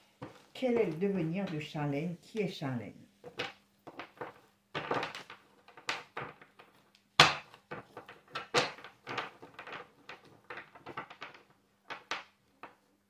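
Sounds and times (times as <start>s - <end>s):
cards shuffled on wooden table: 0.2s - 1.0s, 3.2s - 12.9s.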